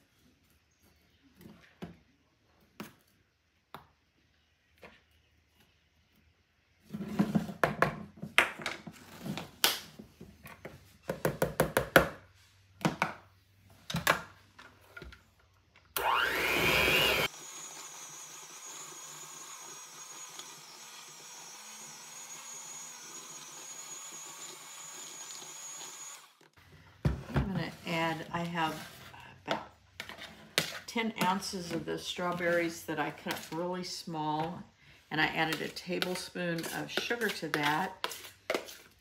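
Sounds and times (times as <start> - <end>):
electric hand mixer whirring: 16.0 - 26.6.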